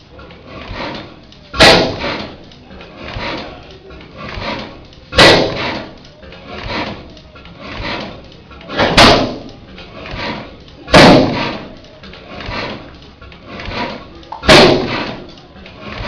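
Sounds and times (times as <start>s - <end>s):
engine firing with loud bang: 1.6s - 2.2s, 5.1s - 5.8s, 8.7s - 9.5s, 10.9s - 11.6s, 14.4s - 15.2s.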